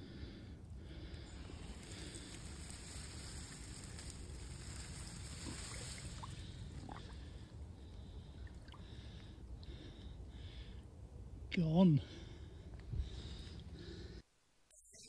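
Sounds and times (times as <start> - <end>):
steady low rumble: 0.0 - 14.2
rustling of reeds: 1.0 - 7.6.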